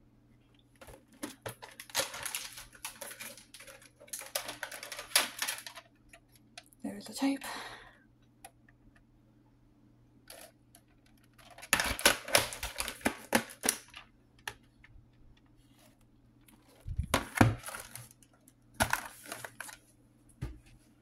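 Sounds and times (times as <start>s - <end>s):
plastic cases clicking and clattering: 0.8s - 6.7s, 10.3s - 15.4s, 16.5s - 19.8s.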